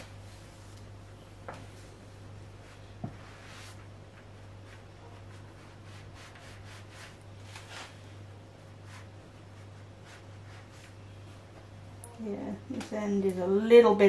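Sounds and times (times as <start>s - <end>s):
steady low hum: 0.0s - 14.0s
iron rustling over fabric: 1.6s - 11.6s.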